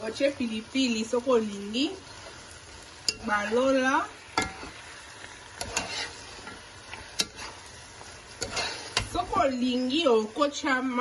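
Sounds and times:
frying hiss: 0.0s - 11.0s
spoon knocking and scraping pot: 4.4s - 4.8s, 5.6s - 7.7s, 8.3s - 9.6s.

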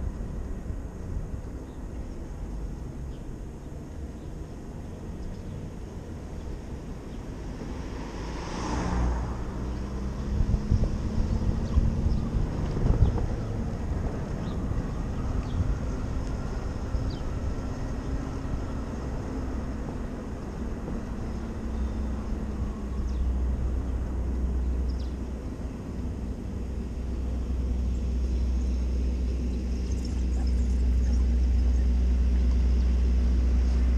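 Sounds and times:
wind and road rumble: 0.0s - 33.9s.

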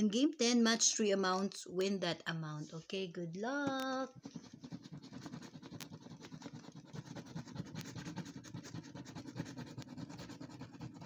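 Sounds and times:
coin scraping scratchcard: 4.2s - 11.0s.

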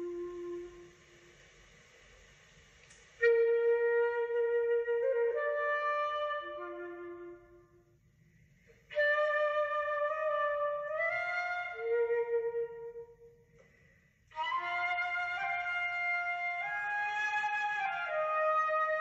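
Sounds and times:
flute melody: 0.0s - 1.0s, 3.2s - 7.8s, 8.9s - 13.3s, 14.3s - 19.0s.

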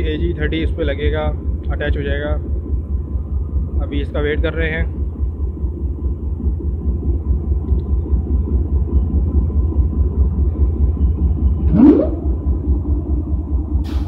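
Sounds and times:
air compressor whine and hum: 0.0s - 14.0s
locomotive idling rumble: 0.0s - 14.0s.

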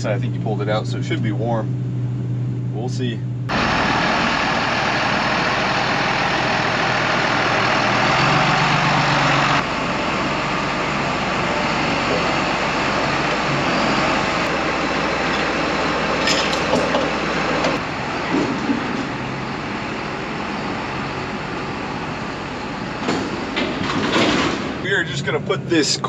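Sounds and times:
tractor diesel engine idling: 3.5s - 26.0s
short metal clanks: 16.2s - 18.9s.

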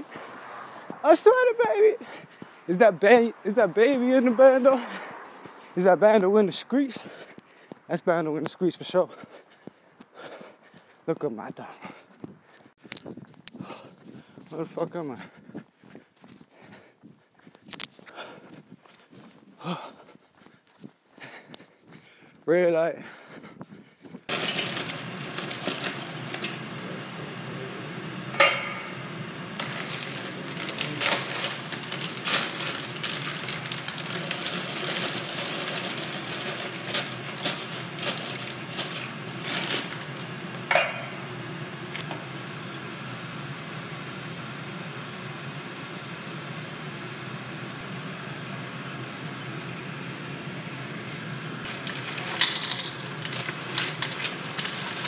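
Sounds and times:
pots and pans clinking: 24.3s - 27.0s, 28.4s - 29.0s, 29.6s - 41.2s, 51.7s - 55.0s.

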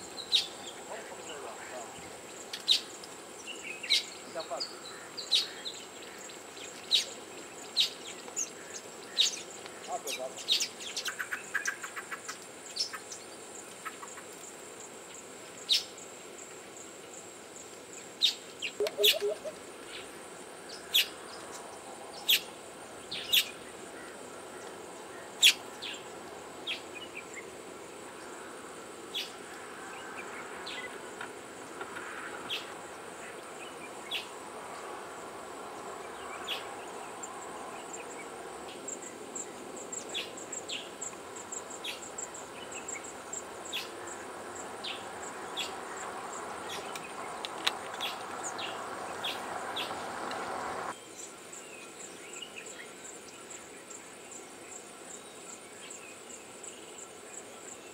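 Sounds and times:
high-pitched insect trill: 25.3s - 57.9s.

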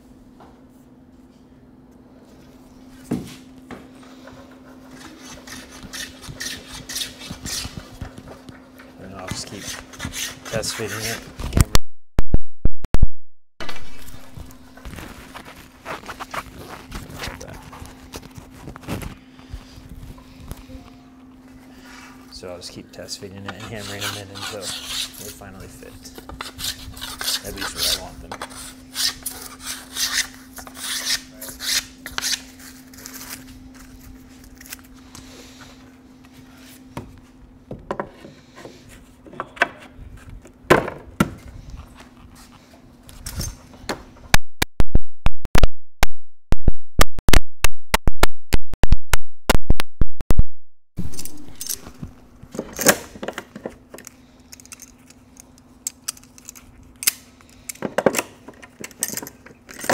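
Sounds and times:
steady low hum: 13.6s - 44.4s.

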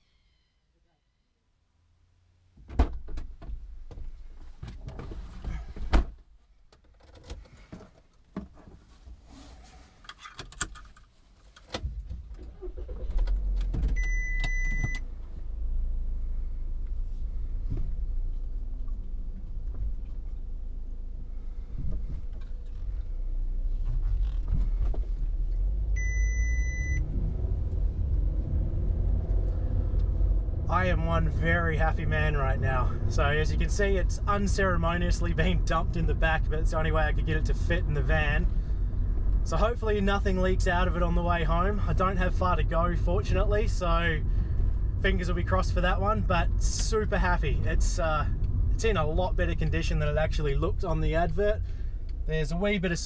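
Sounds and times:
van engine rumbling: 1.7s - 53.0s
knocks and clunks: 2.6s - 8.9s, 11.6s - 15.0s, 21.7s - 22.9s.

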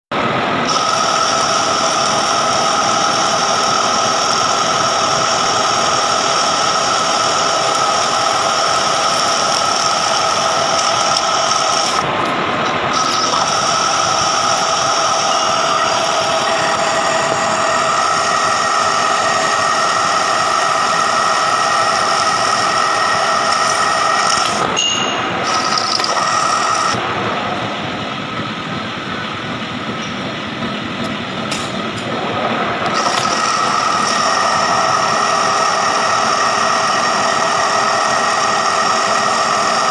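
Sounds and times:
metal lathe cutting hiss: 0.2s - 39.9s
high ringing squeal: 24.7s - 26.9s.

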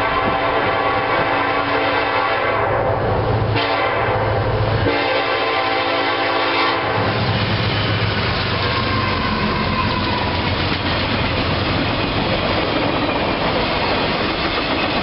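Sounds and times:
train air horn blasts: 0.0s - 7.4s
locomotive engine and wheels: 0.0s - 15.0s.

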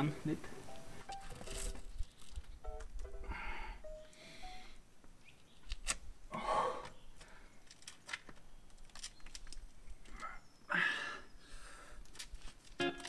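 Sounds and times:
person breathing forcefully: 10.7s - 12.0s.

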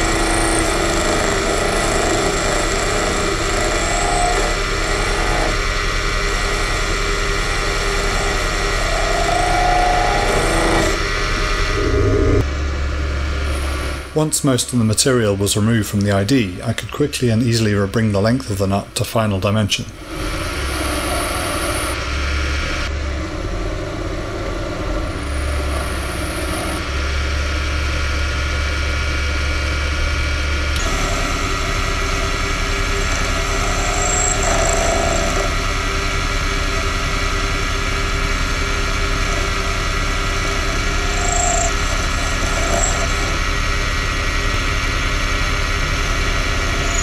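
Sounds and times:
tool cutting steel: 0.0s - 11.0s, 30.8s - 36.9s, 37.5s - 44.0s
lathe motor humming: 0.0s - 12.4s, 20.0s - 47.0s.

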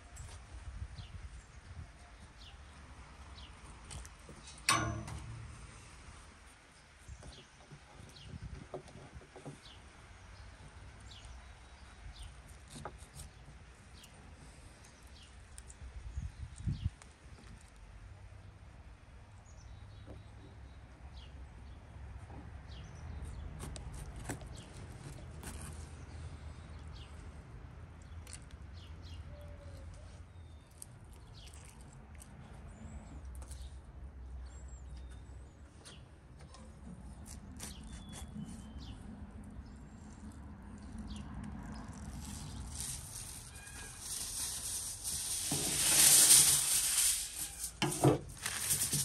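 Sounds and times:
wet clicks and squelches: 30.7s - 32.5s.

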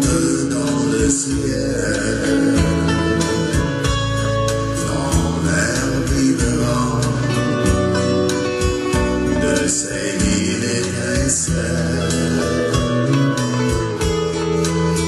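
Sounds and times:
guitar music: 0.0s - 15.0s.

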